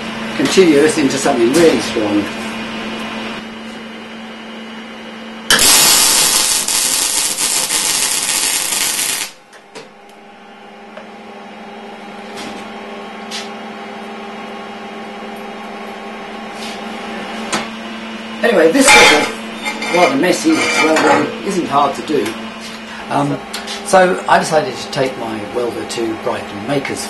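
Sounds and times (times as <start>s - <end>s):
welder arc crackling and hissing: 5.5s - 9.5s.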